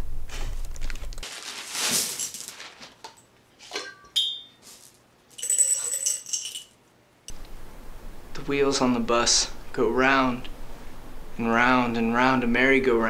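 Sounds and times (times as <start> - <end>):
jelly beans clinking on glass jar: 1.8 - 6.8
jingling rattle: 4.3 - 6.8.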